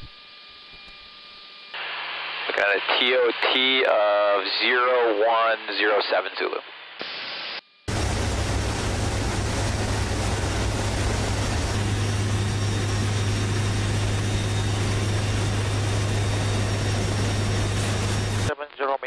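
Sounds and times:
turboprop engines droning: 7.9 - 18.6.

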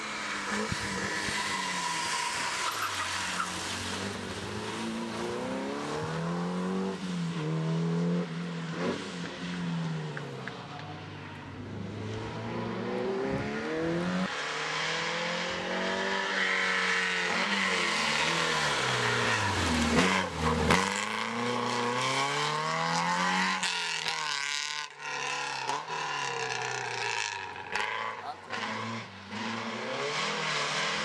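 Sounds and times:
rally car engine revving: 0.0 - 31.0
second rally car engine revving: 11.6 - 31.0.

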